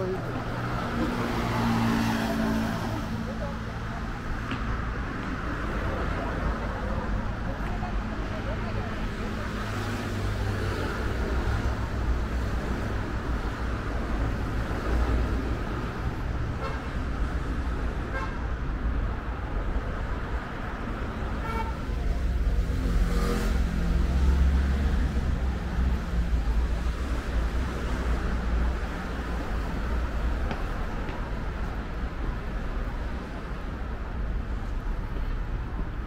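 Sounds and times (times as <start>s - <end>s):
street traffic rumble: 0.0s - 36.0s.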